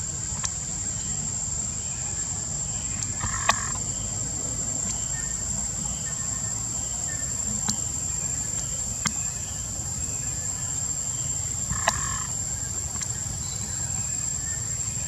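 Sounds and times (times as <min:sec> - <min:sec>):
insects droning: 0:00.0 - 0:15.0
sharp clicks: 0:03.0 - 0:03.8, 0:11.7 - 0:12.2.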